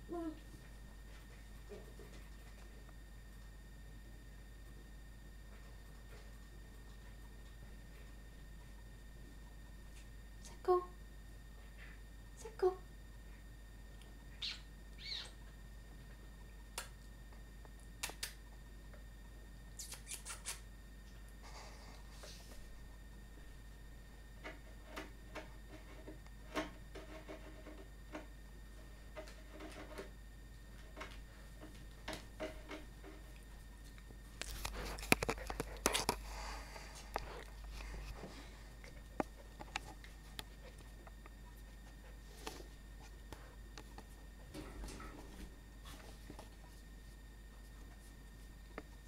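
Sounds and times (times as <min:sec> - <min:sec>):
puppy chewing on toy: 0:33.4 - 0:42.2.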